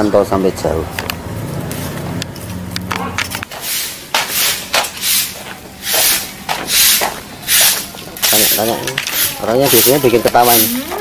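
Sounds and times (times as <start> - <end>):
broom sweeping on paving: 3.5 - 11.0.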